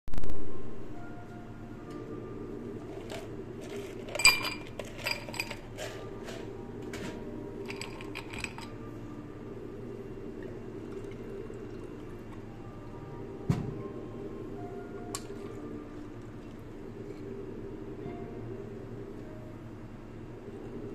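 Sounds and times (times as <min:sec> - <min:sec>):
steady low hum: 0:00.2 - 0:20.9
ice cubes clinking: 0:03.6 - 0:05.7, 0:07.7 - 0:08.8
ice cubes clattering into glass: 0:07.7 - 0:08.7.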